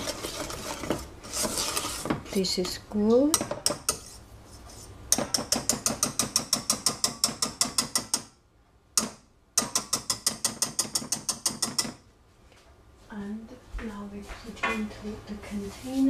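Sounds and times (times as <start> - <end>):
whisk clicking against saucepan: 5.1 - 8.3, 9.0 - 12.0.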